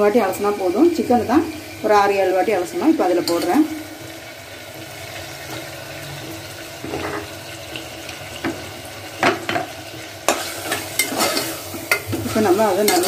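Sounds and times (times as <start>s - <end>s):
meat sizzling in hot oil: 0.0s - 13.0s
metal spoon scraping a pot: 10.3s - 13.0s.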